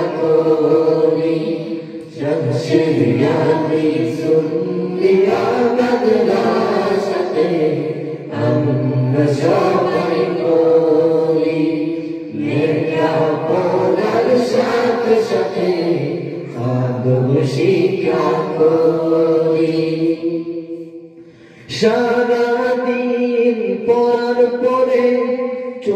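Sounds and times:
boys singing unaccompanied: 0.0 - 20.4.

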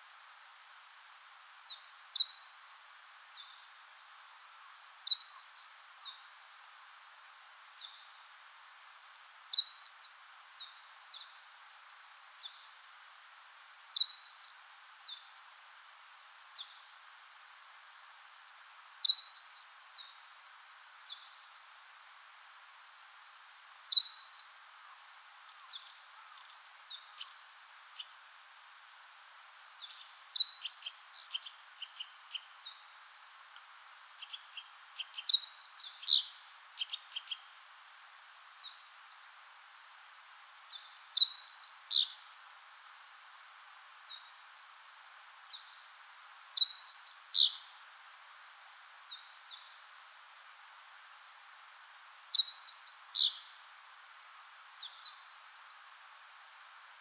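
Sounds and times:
faint steady hiss: 0.0 - 57.0
songbird singing: 1.3 - 8.5, 9.2 - 13.3, 13.9 - 39.7, 40.4 - 42.4, 43.5 - 47.8, 48.7 - 53.7, 54.4 - 57.0
soft bird chirps and calls: 1.4 - 8.4, 9.5 - 12.9, 13.9 - 17.4, 19.0 - 28.4, 29.4 - 37.7, 38.3 - 39.6, 40.4 - 42.3, 43.6 - 47.8, 48.7 - 53.6, 54.4 - 56.0.

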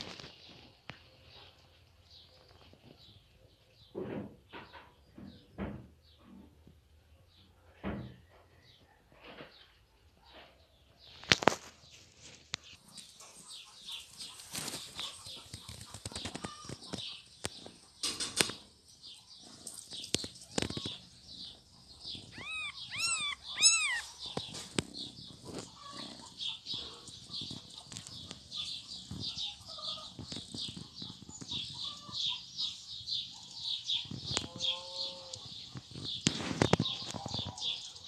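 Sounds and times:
rapid high chirping: 19.9 - 32.8
kittens mewing: 22.2 - 24.4.

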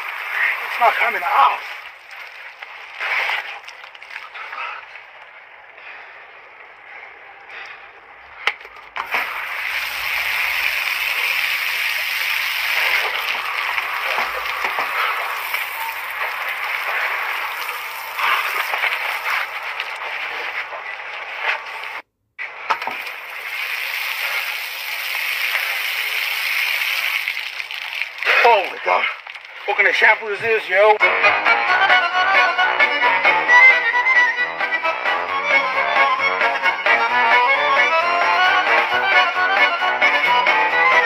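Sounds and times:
shower water spraying: 0.0 - 3.6, 9.0 - 20.0, 22.8 - 29.6.

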